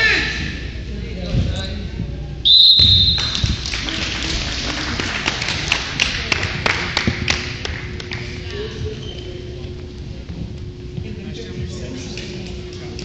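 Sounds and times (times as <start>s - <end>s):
spectators clapping: 3.1s - 8.7s
crowd murmur: 3.6s - 13.0s.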